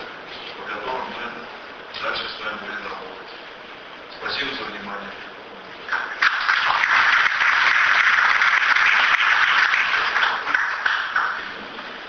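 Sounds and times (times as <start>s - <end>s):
audience applauding: 5.9s - 11.6s.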